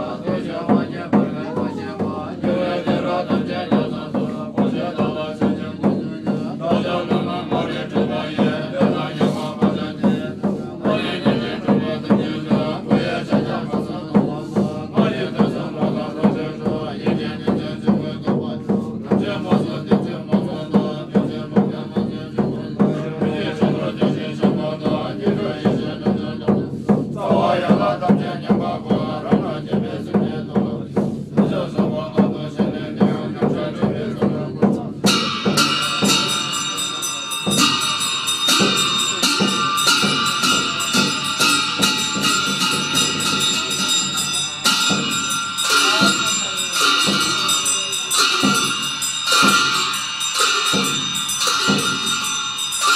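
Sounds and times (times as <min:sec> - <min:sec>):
clashing cymbals: 0:00.0 - 0:52.9
monks chanting in low voices: 0:00.0 - 0:52.9
steady drum beat: 0:00.0 - 0:52.9
ringing bells: 0:35.0 - 0:52.9.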